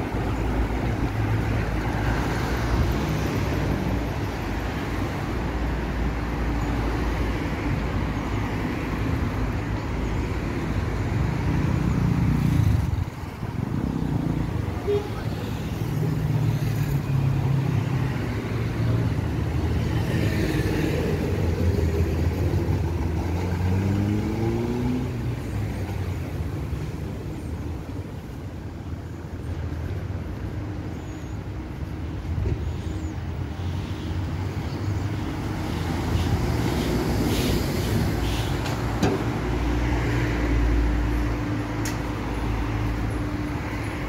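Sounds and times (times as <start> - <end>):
tyres on road: 0.0 - 44.0
vehicle accelerating: 21.7 - 25.4.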